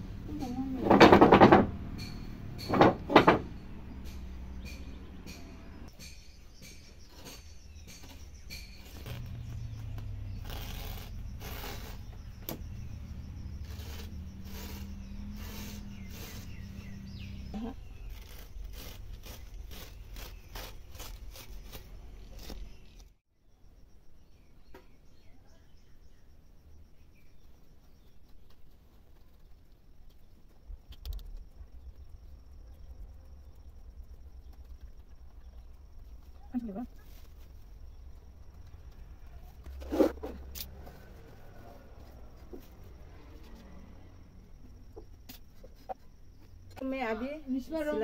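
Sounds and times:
low outdoor rumble: 0.0 - 6.0, 29.0 - 48.0
loud knocks: 0.8 - 4.1
cloth rustling on a loom: 6.1 - 12.6.

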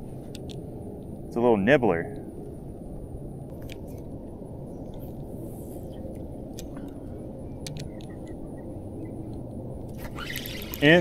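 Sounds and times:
steady low rumble: 0.0 - 11.0
fishing reel clicks: 9.9 - 11.0.

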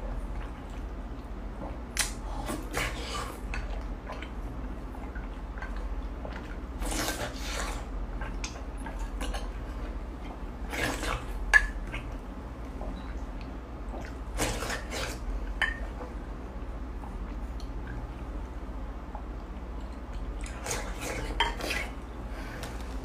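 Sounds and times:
person slurping and chewing: 6.8 - 9.6.

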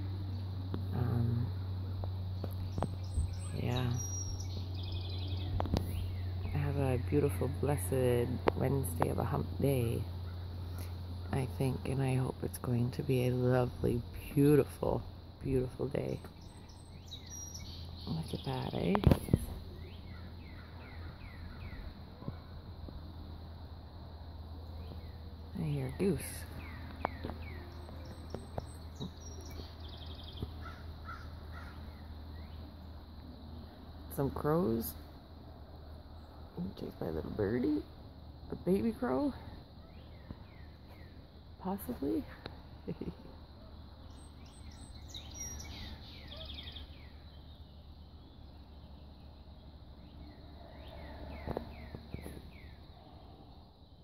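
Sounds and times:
low outdoor rumble: 0.0 - 54.0
small bird chirping: 0.2 - 9.1, 15.7 - 22.6, 24.6 - 34.9, 38.5 - 54.0
bird trill: 2.7 - 6.5, 16.1 - 18.5, 44.0 - 53.1
crows cawing: 30.6 - 31.9.

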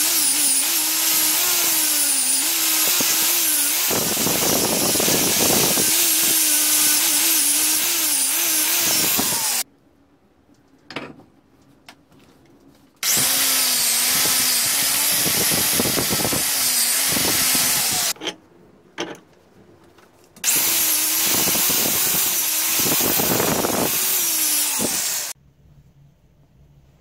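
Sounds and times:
angle grinder wire wheel scouring metal: 0.0 - 9.6, 13.0 - 18.2, 20.4 - 25.4.

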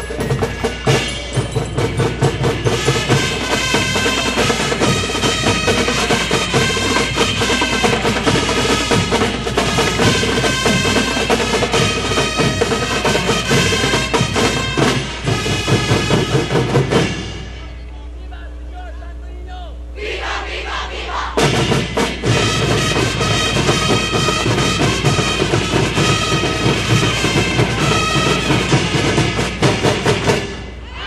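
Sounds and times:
loud fast drumming: 0.0 - 17.8, 21.2 - 31.0
pitched melody: 0.0 - 17.9.

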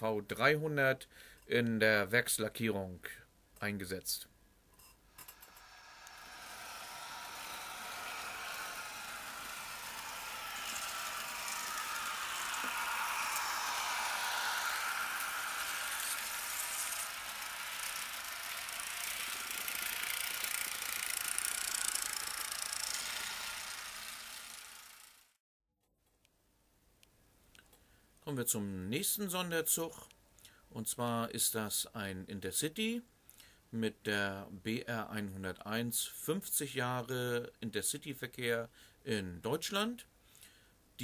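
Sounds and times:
model train rattling whir: 5.1 - 25.4.

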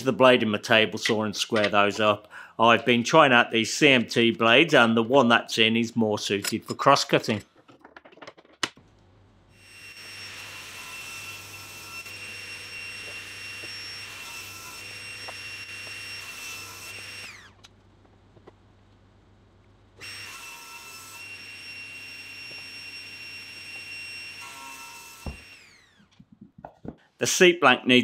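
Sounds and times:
table saw whining while cutting: 9.5 - 17.6, 20.0 - 26.1.

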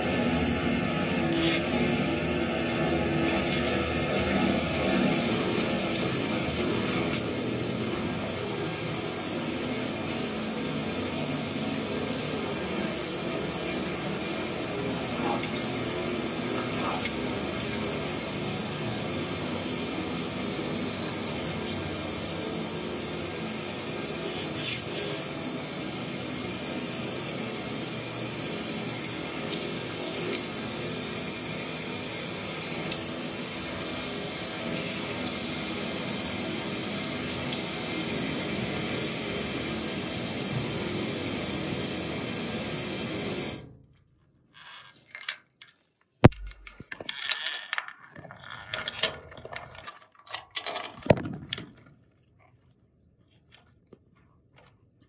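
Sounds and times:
pressure washer hiss and hum: 0.0 - 43.8.

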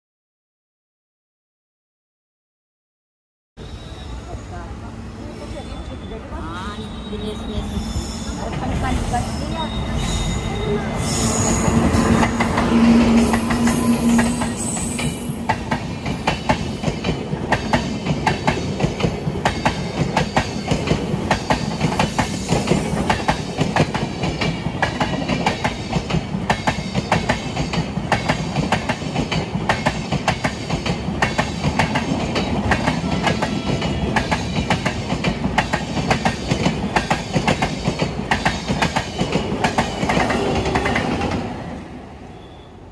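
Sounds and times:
train passing at speed: 3.6 - 42.9
wheels clacking over rail joints: 12.1 - 41.7.

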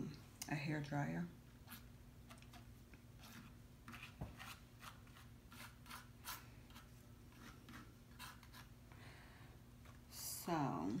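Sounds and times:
spatula scraping paint on canvas: 1.6 - 8.7.

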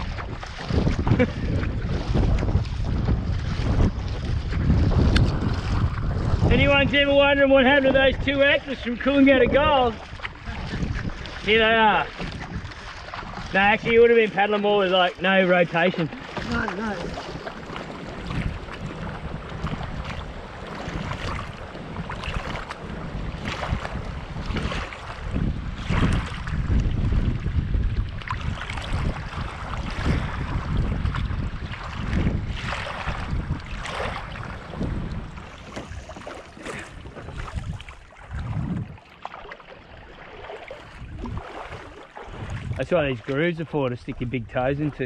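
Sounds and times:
water splashing around kayak: 0.0 - 45.0
wind on microphone: 0.0 - 45.0
waves splashing on rocks: 13.5 - 25.3.

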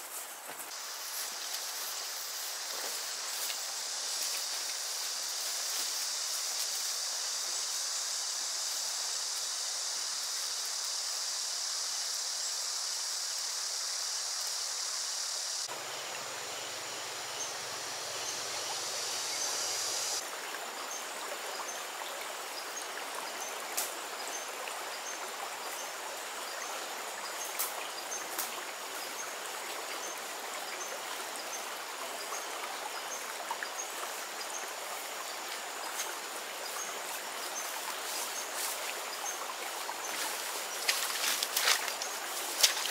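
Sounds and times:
high-pitched insect drone: 0.8 - 20.2.

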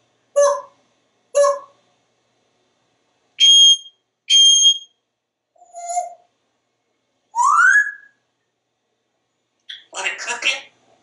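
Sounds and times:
parrot whistling: 0.4 - 0.8, 1.4 - 1.7, 3.4 - 4.9, 5.6 - 6.2, 7.4 - 8.2.

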